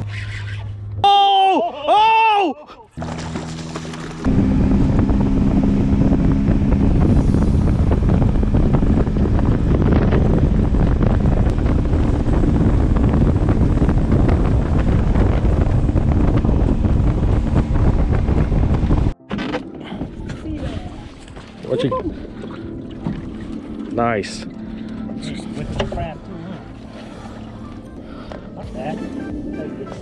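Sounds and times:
boat engine humming: 2.9s - 30.0s
wind buffeting the microphone: 4.2s - 19.2s.

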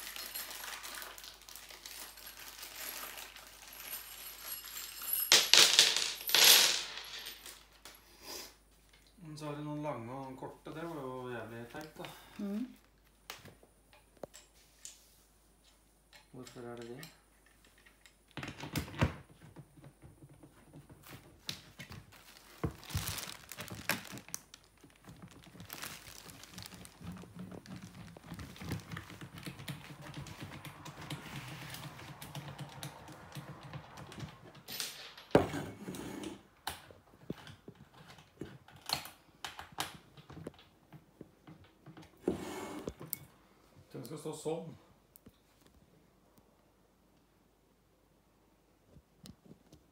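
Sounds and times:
plastic wrapping rustling: 0.0s - 5.1s, 21.0s - 33.4s.

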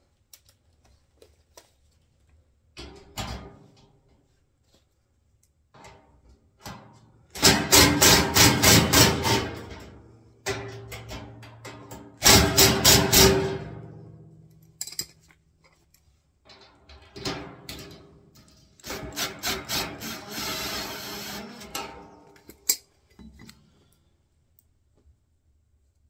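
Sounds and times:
cordless drill driving bolts: 18.8s - 22.1s.

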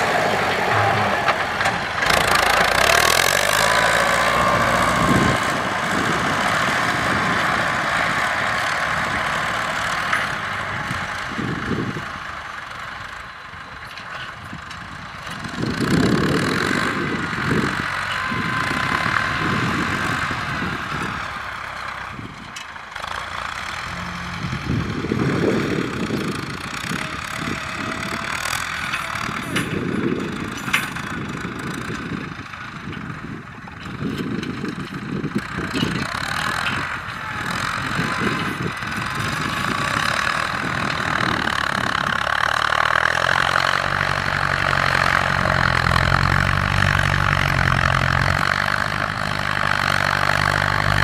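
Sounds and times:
tractor diesel engines: 0.0s - 51.0s.

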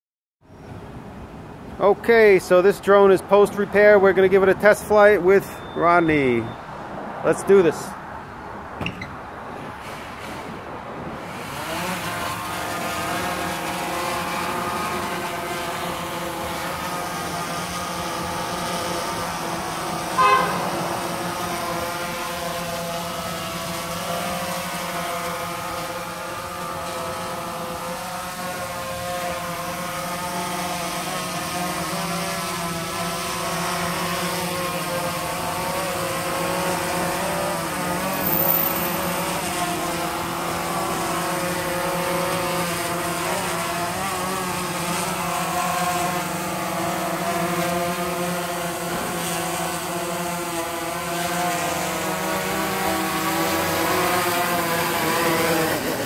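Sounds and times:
drone propellers whining: 11.2s - 56.0s.

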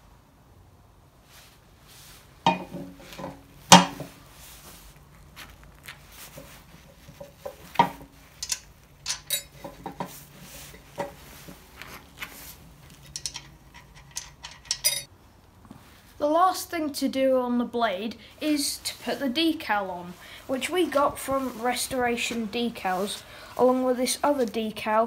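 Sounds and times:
metallic clinks of steel parts: 8.4s - 9.8s, 13.0s - 15.1s.

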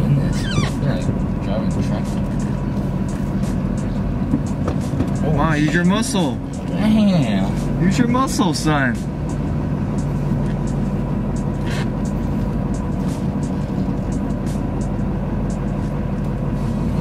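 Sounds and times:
diesel truck engine drone in cab: 0.0s - 17.0s.

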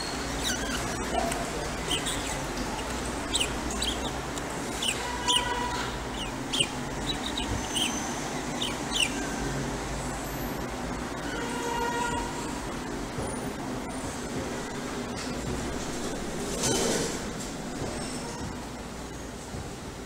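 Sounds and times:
budgerigar chirping: 0.0s - 9.4s.

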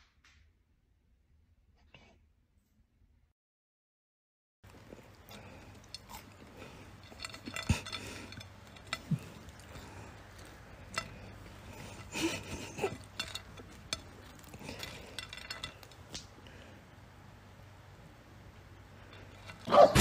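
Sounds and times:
fries clinking against plate: 4.7s - 16.7s.

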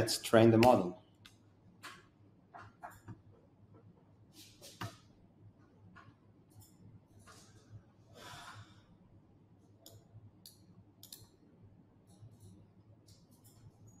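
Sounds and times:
faint breath: 8.1s - 9.0s
soft small clicks: 9.8s - 11.4s.

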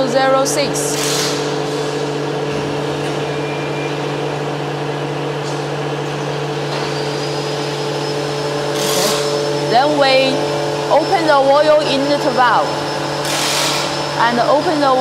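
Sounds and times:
vacuum pump motor hum: 0.0s - 15.0s.

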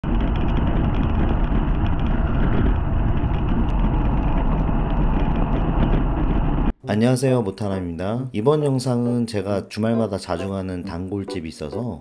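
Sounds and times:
wind buffeting microphone: 0.0s - 6.8s.

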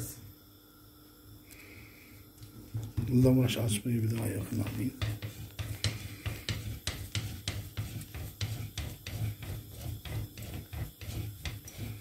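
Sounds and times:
rolling pin knocking on countertop: 4.6s - 11.9s.

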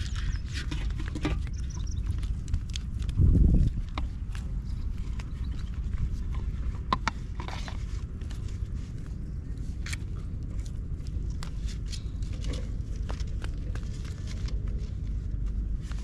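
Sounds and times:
plastic bottle handled: 0.0s - 9.1s
bare feet in wet mud: 0.0s - 16.0s
low rumble: 0.0s - 16.0s.

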